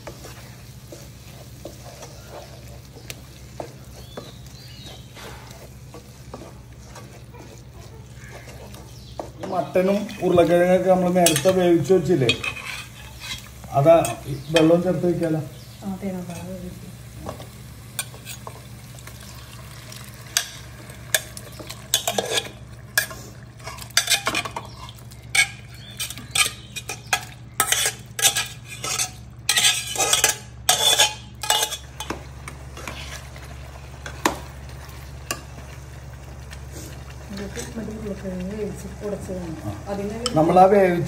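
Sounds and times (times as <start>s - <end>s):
light sizzle: 0.0s - 41.0s
steel ladle scraping and clinking pot: 11.2s - 14.7s, 20.4s - 32.2s.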